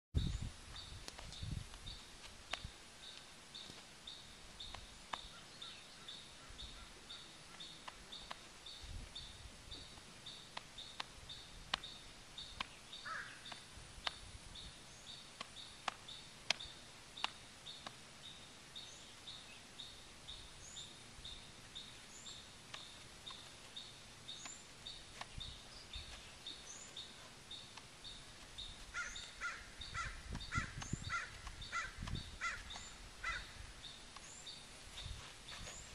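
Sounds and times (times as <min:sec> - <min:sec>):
lower bird calls: 0:04.2 - 0:13.7, 0:14.5 - 0:35.9
brief bird calls: 0:28.9 - 0:33.6.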